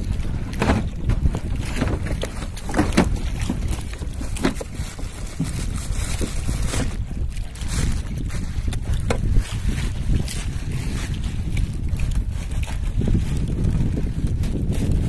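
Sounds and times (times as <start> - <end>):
fishing gear knocking and rattling: 0.0 - 10.3
wind rumbling on microphone: 0.0 - 15.0.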